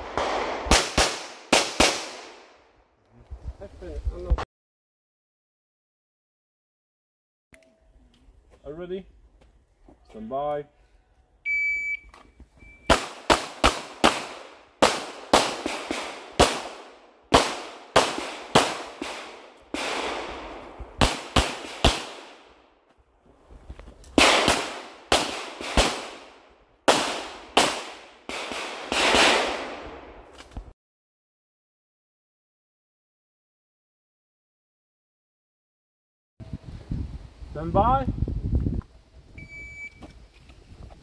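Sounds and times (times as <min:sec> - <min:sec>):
shot timer beep: 0:11.5 - 0:12.9, 0:39.4 - 0:40.0.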